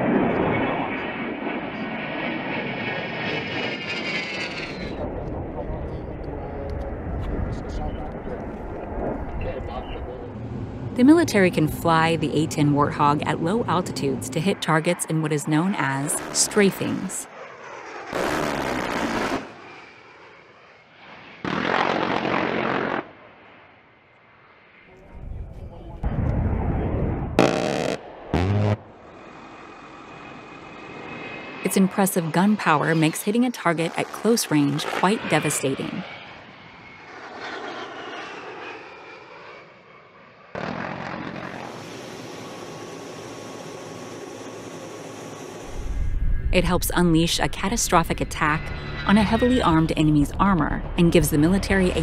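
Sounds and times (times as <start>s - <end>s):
jet noise: 0.0s - 52.0s
rotary cannon bursts: 18.1s - 19.5s.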